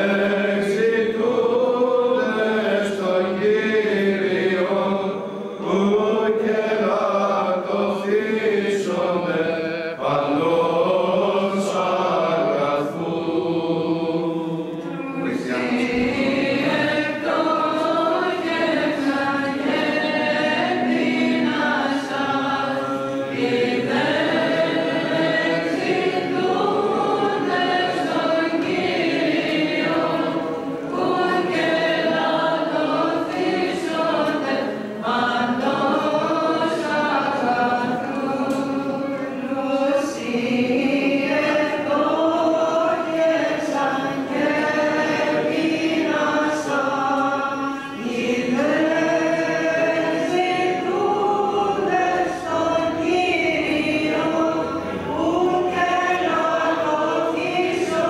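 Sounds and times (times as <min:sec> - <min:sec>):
singers breathing: 0:47.6 - 0:48.0.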